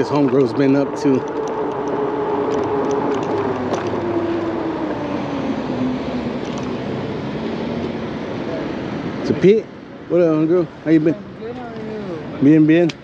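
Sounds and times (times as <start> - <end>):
electric motor whining: 0.4 - 8.0.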